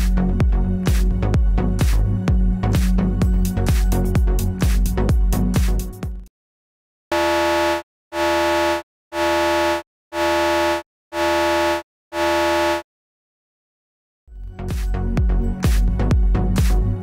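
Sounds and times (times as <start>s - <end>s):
buzzy alarm beeps: 7.1s - 12.8s.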